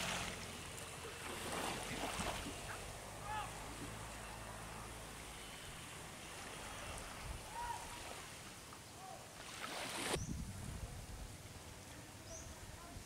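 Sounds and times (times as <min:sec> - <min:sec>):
distant boat engine hum: 0:00.0 - 0:10.2
calm water washing: 0:00.0 - 0:13.0.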